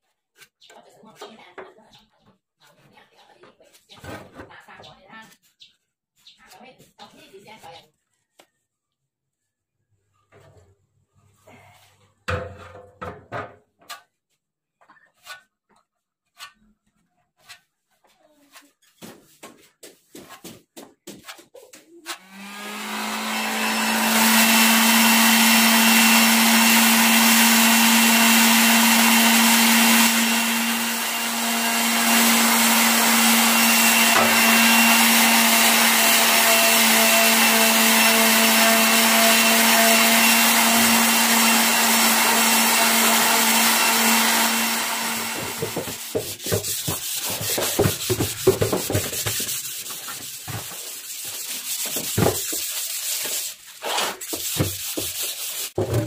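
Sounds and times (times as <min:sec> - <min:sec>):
electric sander humming: 0:22.2 - 0:46.2
sandpaper rubbing on metal tank: 0:45.7 - 0:56.0.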